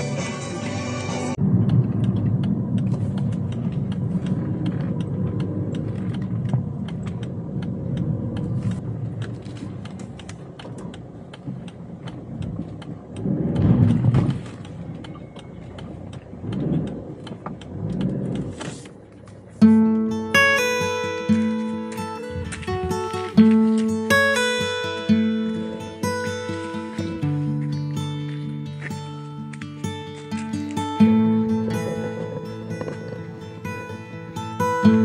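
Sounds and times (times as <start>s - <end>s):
car road and engine rumble: 0.0s - 20.7s, 26.6s - 35.0s
small ticks and clicks: 1.4s - 20.1s, 20.8s - 35.0s.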